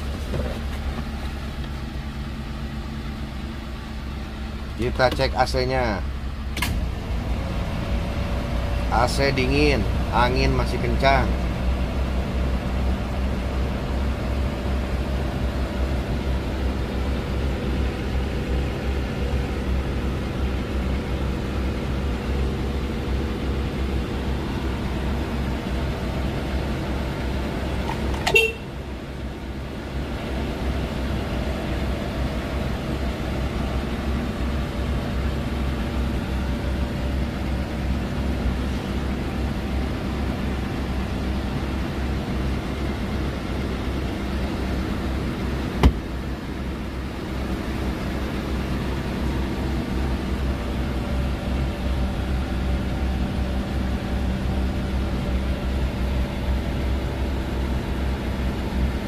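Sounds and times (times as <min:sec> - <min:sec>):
air conditioning blower: 0:00.0 - 0:59.0
car engine idling: 0:00.0 - 0:59.0
sharp click: 0:06.6 - 0:06.8.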